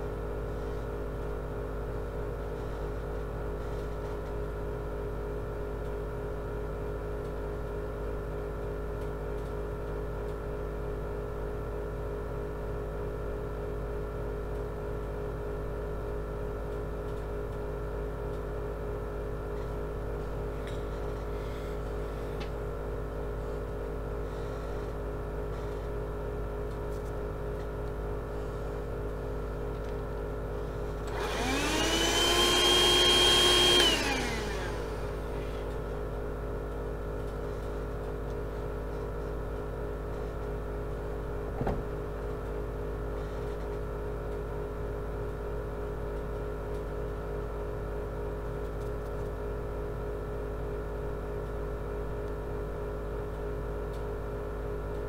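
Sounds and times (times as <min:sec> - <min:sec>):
steady background hum: 0:00.0 - 0:55.0
hand vacuum motor whine: 0:31.0 - 0:35.8.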